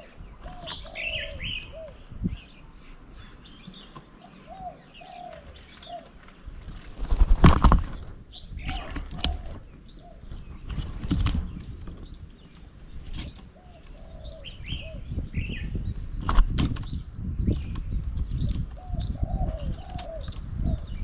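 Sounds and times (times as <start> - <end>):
wind rumble on microphone: 0.0 - 3.4, 6.4 - 21.0
birds chirping: 0.0 - 21.0
low coo-like bird calls: 0.0 - 21.0
wing flutters: 6.3 - 9.7.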